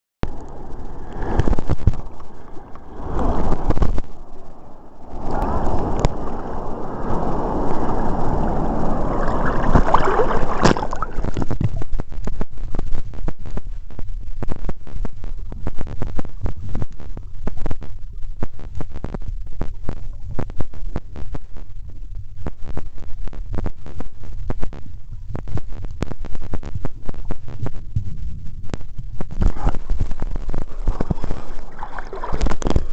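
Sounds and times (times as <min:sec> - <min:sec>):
muffled underwater rumble: 0:00.2 - 0:32.9
underwater clicks and crackles: 0:00.2 - 0:32.9
sea water splashing: 0:00.4 - 0:12.0, 0:29.4 - 0:32.9.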